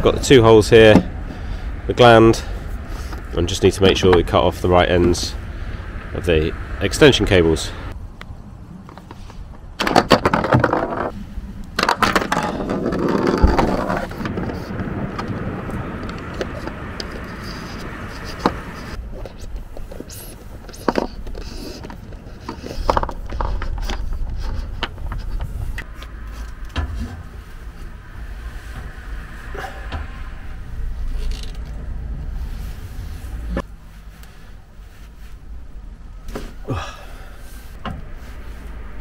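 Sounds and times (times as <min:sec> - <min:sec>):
steady low rumble: 0:00.0 - 0:09.8, 0:11.0 - 0:39.0
hand tools clicking and scraping: 0:16.1 - 0:27.8.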